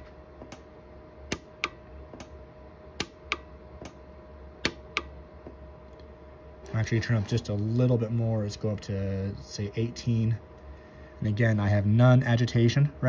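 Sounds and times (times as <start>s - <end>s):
welder pulse snaps: 0.4s - 2.4s, 3.0s - 4.0s, 4.6s - 5.2s.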